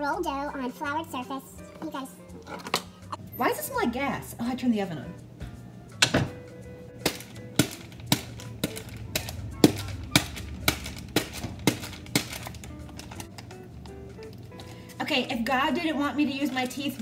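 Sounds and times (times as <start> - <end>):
background music with clicking beat: 5.2 - 15.0.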